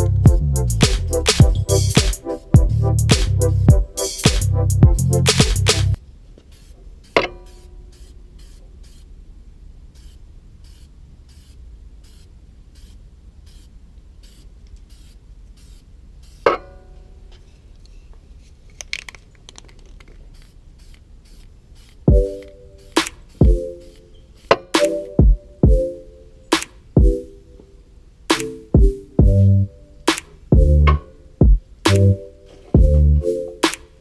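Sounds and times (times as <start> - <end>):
aerosol spray can hissing: 6.5 - 9.2, 9.9 - 16.5, 19.9 - 24.9.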